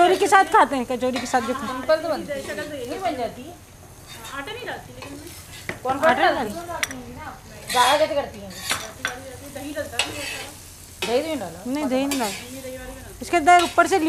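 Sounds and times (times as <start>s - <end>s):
food frying sizzle: 0.0s - 14.0s
spoon scraping metal pan: 1.1s - 3.1s, 4.0s - 7.0s, 7.6s - 14.0s
spoon clinking against pan: 6.7s - 7.0s, 8.5s - 9.3s.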